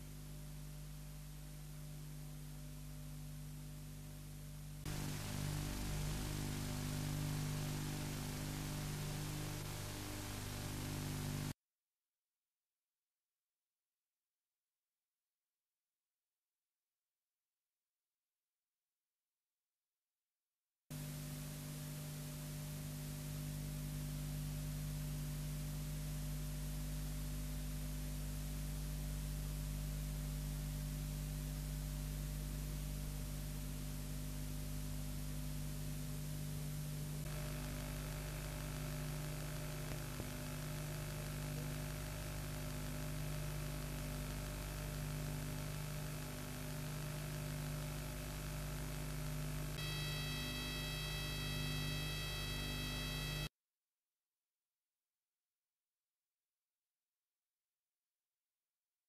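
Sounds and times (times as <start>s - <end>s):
electrical hum with hiss: 0.0s - 11.6s, 21.0s - 53.5s.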